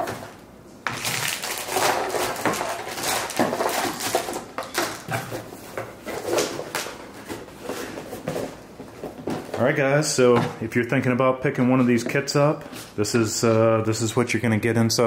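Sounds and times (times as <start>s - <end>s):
cardboard and plastic packaging rustling: 0.0s - 10.6s.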